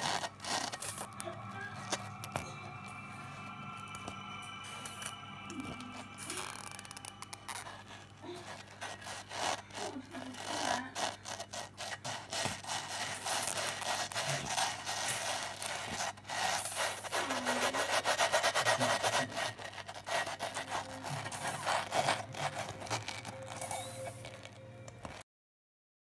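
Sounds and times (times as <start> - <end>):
pufferfish raspy grinding: 0.0 - 1.2, 6.3 - 25.2.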